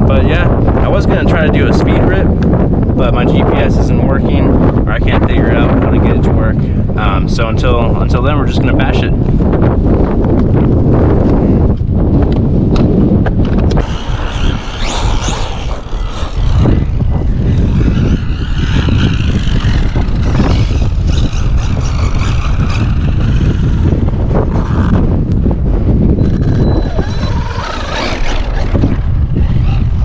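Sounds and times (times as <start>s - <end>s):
wind rumble on microphone: 0.0s - 30.0s
rc truck motor whining: 13.7s - 25.0s, 26.1s - 30.0s.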